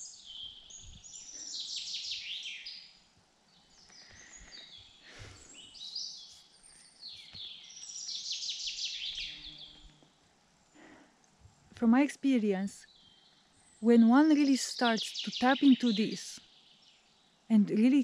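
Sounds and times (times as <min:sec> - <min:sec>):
bird chirps: 0:00.0 - 0:03.0, 0:03.6 - 0:10.0, 0:12.8 - 0:17.0
songbirds trilling: 0:00.0 - 0:10.1.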